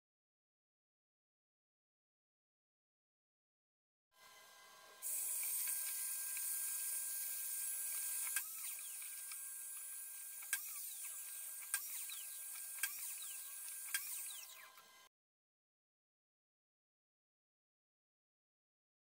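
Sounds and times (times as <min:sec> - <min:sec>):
miter saw cutting: 0:04.2 - 0:15.1.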